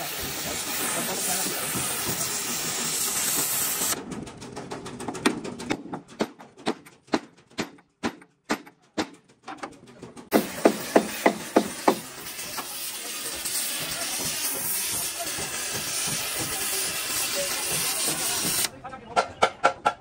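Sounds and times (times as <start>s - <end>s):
steady hiss: 0.0s - 4.0s.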